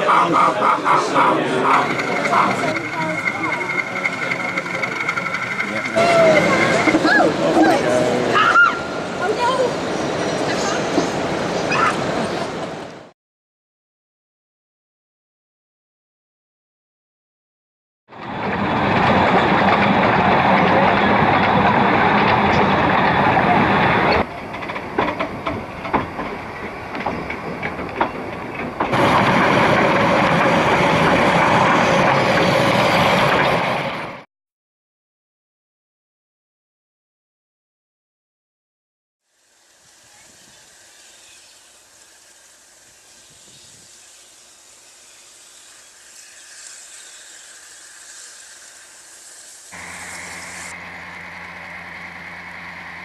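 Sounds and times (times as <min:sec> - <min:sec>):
train wheels clicking over rail joints: 0:00.0 - 0:07.6, 0:18.2 - 0:34.0
train rushing hiss: 0:00.0 - 0:12.7, 0:39.3 - 0:53.0.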